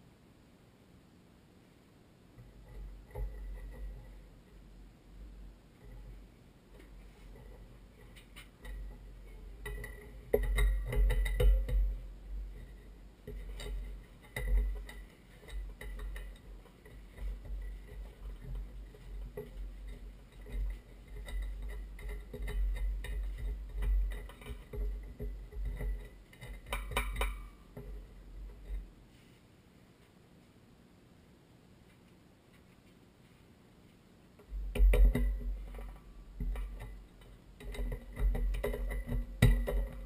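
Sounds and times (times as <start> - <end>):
bumps and rustling: 5.3 - 29.5, 34.4 - 40.0.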